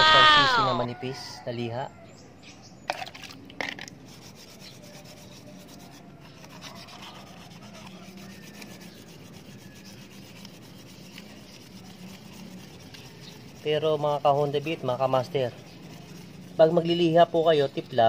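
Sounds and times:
sandpaper rubbing on metal: 0:03.7 - 0:18.0.

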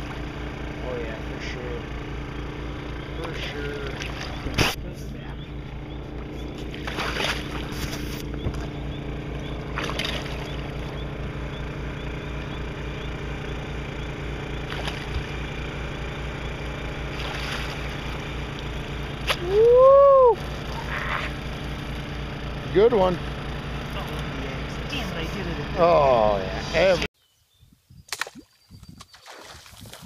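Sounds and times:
boat motor droning: 0:00.0 - 0:27.1
fish splashing: 0:03.8 - 0:04.8, 0:06.5 - 0:08.8, 0:09.6 - 0:10.9, 0:14.6 - 0:15.4, 0:17.0 - 0:19.4, 0:28.1 - 0:30.0.

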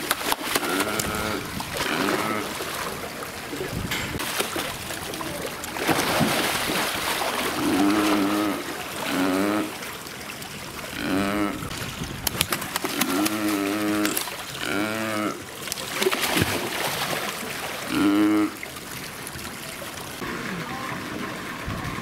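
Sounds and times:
seal vocal sounds: 0:00.0 - 0:04.0, 0:07.4 - 0:09.9, 0:10.8 - 0:11.8, 0:12.8 - 0:15.5, 0:17.8 - 0:18.6
water splashing and sloshing: 0:00.0 - 0:22.0.

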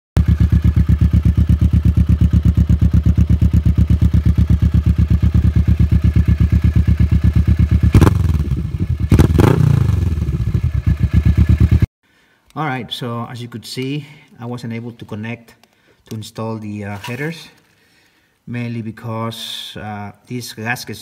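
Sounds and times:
motorcycle engine idling: 0:00.2 - 0:11.9
loud engine bursts: 0:07.8 - 0:11.0.

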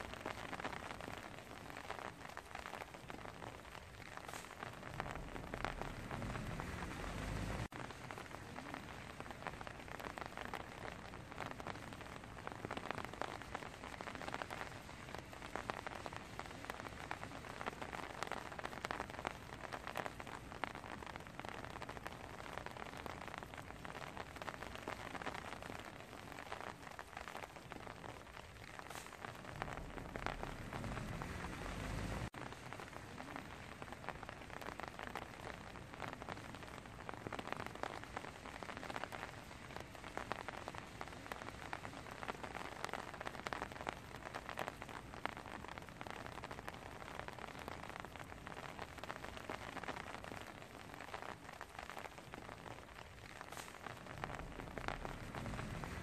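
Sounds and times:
rain pattering: 0:00.0 - 0:56.0
low rumble: 0:04.4 - 0:08.8, 0:29.2 - 0:32.3, 0:53.9 - 0:56.0.

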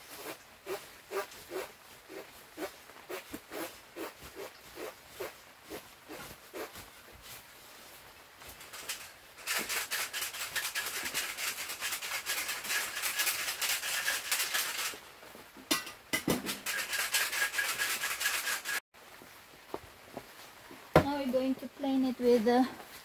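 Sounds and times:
spade scraping through soil: 0:08.6 - 0:15.0.

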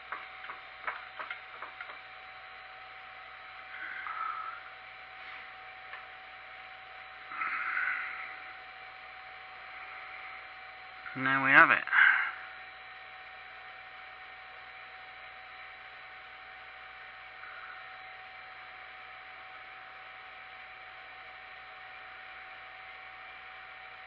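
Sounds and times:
thin steady hum: 0:00.0 - 0:24.0.

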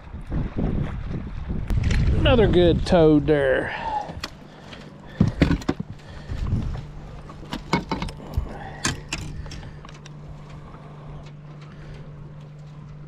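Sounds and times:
low hum: 0:00.0 - 0:13.0
fish handling clicks and rattles: 0:04.1 - 0:13.0.

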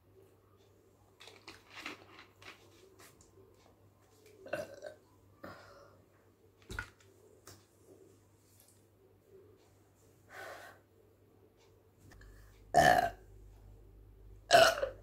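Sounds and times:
woman burping: 0:12.8 - 0:13.2, 0:14.5 - 0:15.0.

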